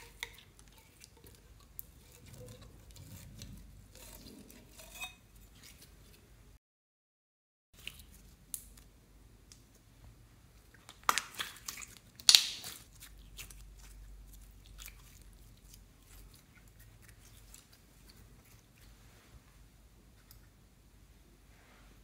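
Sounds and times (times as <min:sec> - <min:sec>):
slime crackling and popping: 0:10.8 - 0:13.9.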